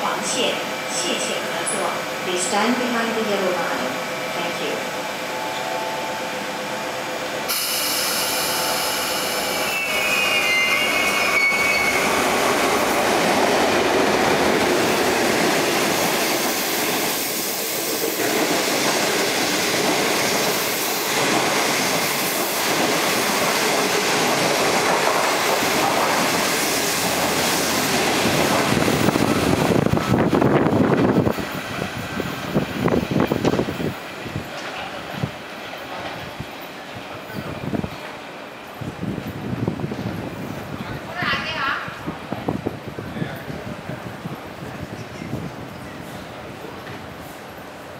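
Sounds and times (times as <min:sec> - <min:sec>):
train wheels on rails: 0:00.0 - 0:47.9
high wheel squeal: 0:07.5 - 0:12.2.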